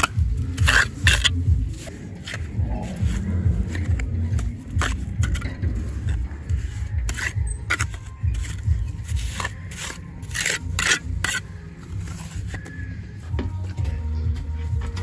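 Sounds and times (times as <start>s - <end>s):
steady low rumble: 0.0s - 9.2s
trowel scraping mortar on block: 0.0s - 12.8s.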